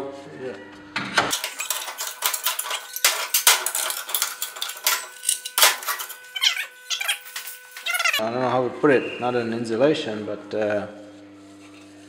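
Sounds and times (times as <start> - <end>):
metal snipping and clattering: 1.3 - 8.2
high squeaky chirps: 5.0 - 8.2.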